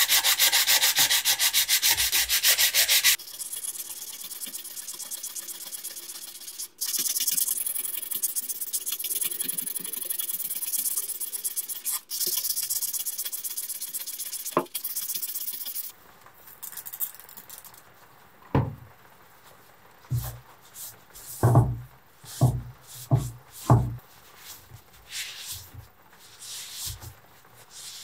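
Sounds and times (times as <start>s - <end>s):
scratchy scrubbing on metal: 0.0s - 3.2s.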